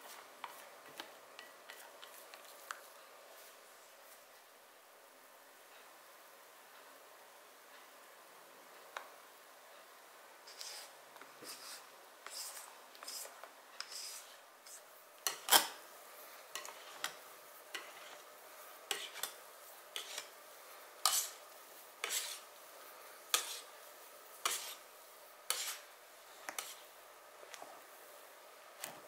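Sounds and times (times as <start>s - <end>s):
whisk swishing batter: 10.5s - 15.5s, 16.6s - 18.3s, 18.9s - 20.4s, 21.0s - 22.5s, 23.3s - 24.9s, 25.5s - 26.9s.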